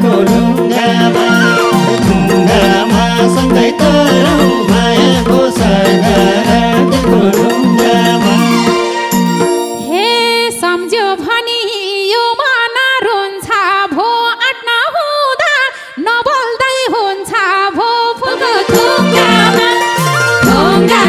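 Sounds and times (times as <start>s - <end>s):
band accompaniment: 0.0s - 10.2s, 18.3s - 21.0s
woman singing into a microphone: 9.8s - 21.0s.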